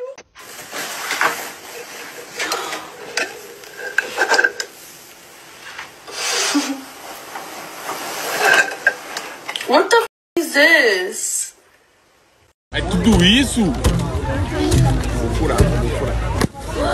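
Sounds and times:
bedding rustling: 0.3 - 9.8.

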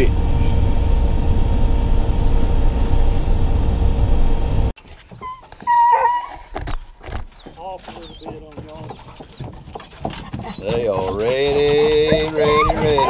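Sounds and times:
truck driving low rumble: 0.0 - 4.8
dog whining: 5.2 - 6.5, 9.2 - 13.0.

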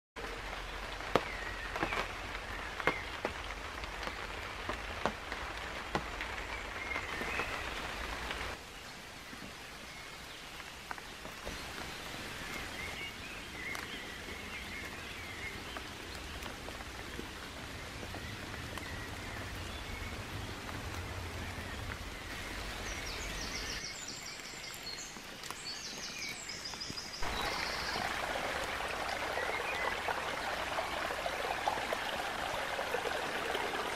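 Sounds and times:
rain on a tarp: 0.2 - 33.9
stream running over stones: 0.2 - 33.9
birds chirping: 0.5 - 33.9
water drips: 10.5 - 33.9.

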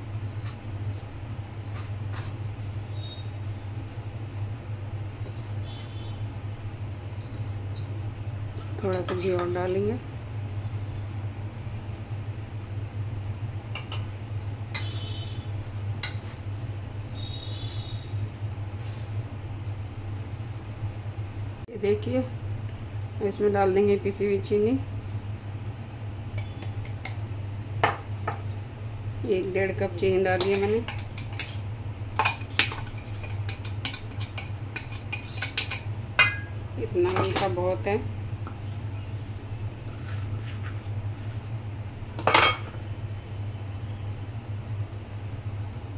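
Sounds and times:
steady low hum: 0.0 - 45.9
spoon clinking against metal bowls: 14.7 - 15.0, 30.4 - 31.6, 32.2 - 37.5.

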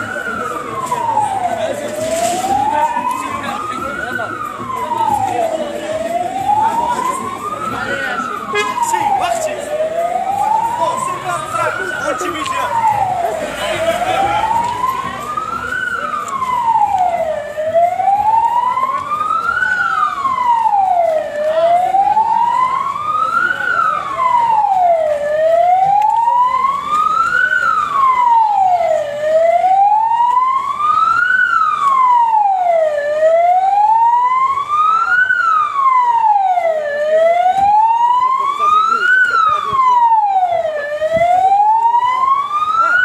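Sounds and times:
emergency siren wailing: 0.0 - 43.0.

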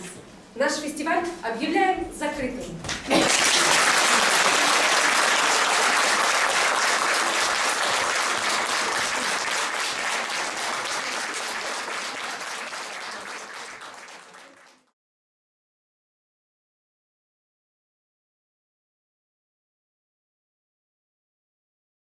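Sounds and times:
audience applause: 3.0 - 14.9.

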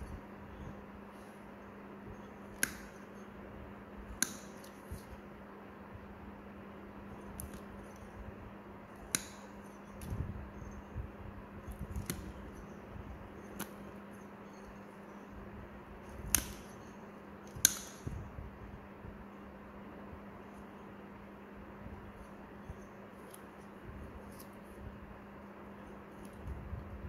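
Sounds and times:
steady low hum: 0.0 - 27.0
toenail nippers snipping: 2.5 - 3.0, 11.7 - 12.7, 16.1 - 16.8, 17.5 - 18.1.

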